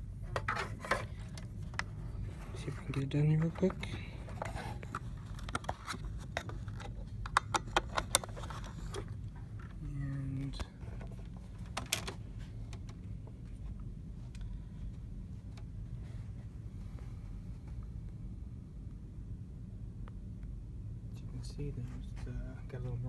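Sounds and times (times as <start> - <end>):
plastic cable clicks and rattles: 3.4 - 9.8, 11.0 - 13.0.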